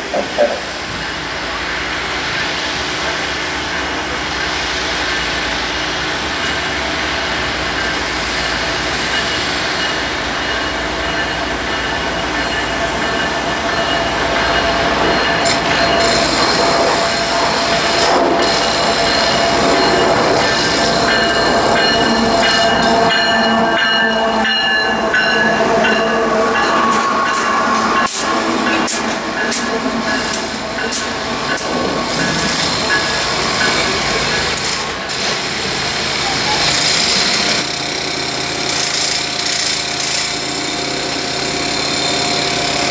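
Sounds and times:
diesel locomotives running: 0.0 - 42.9
steel wheels on rail: 0.0 - 42.9.

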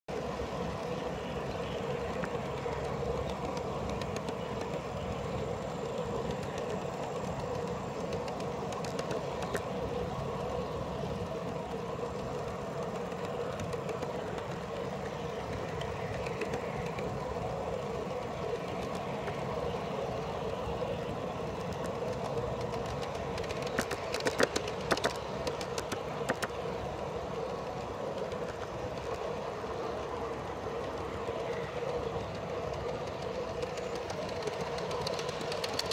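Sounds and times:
train wheels rolling on rails: 0.0 - 35.9
sharp clicks and clatter: 2.0 - 5.2, 5.8 - 9.8, 21.5 - 26.8, 31.5 - 35.9.

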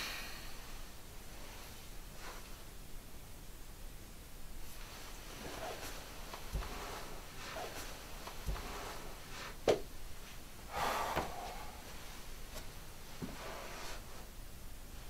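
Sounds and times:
rustling hiss: 0.0 - 2.8, 4.5 - 15.0
faint footsteps: 4.6 - 14.3.

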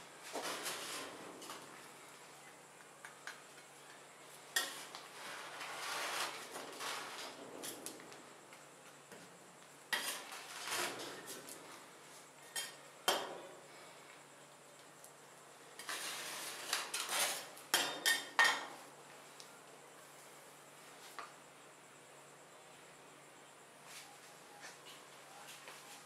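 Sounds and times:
steel spatulas scraping metal plate: 9.9 - 11.1, 15.8 - 18.3.

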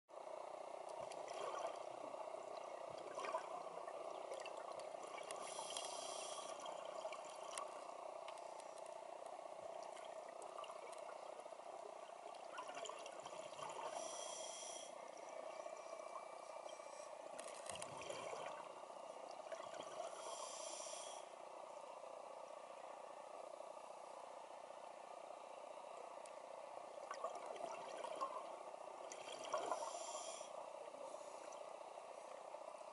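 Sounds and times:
underwater hiss: 5.2 - 6.9, 13.7 - 15.0, 19.9 - 21.4, 29.2 - 32.3
regulator inhalation hiss: 5.4 - 6.6, 13.9 - 15.0, 20.1 - 21.3, 29.7 - 31.4.

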